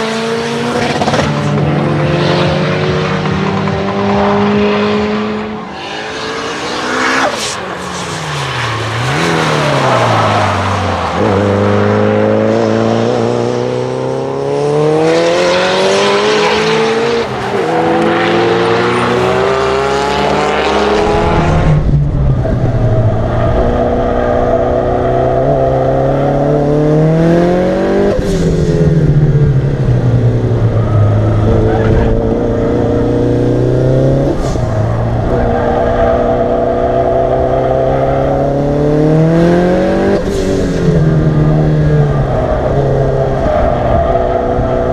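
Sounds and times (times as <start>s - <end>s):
turbocharged engine at full throttle: 0.0s - 44.9s.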